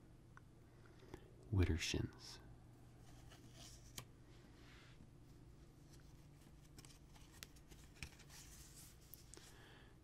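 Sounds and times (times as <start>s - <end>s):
paper rustle: 5.7s - 9.5s.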